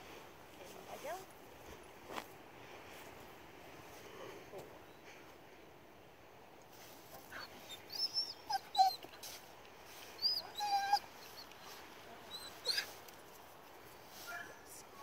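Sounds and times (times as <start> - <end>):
dog whining and yipping: 7.4 - 9.1, 10.2 - 11.5, 12.3 - 12.9.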